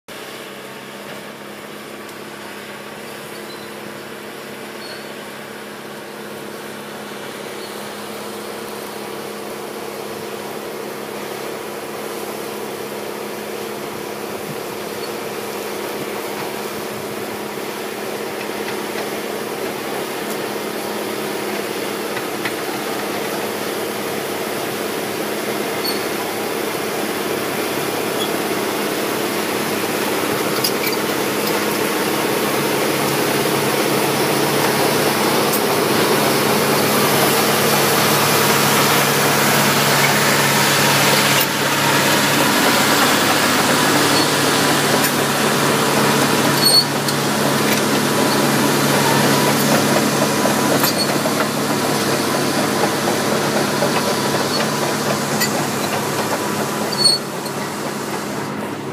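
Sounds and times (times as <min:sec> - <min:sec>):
bulldozer diesel engine under load: 0:00.1 - 0:58.9.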